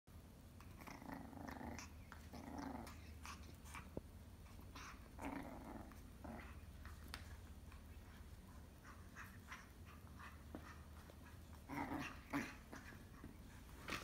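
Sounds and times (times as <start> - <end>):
puppy growling: 0.6 - 7.0, 7.6 - 14.0
small clicks and scuffs: 6.8 - 8.4.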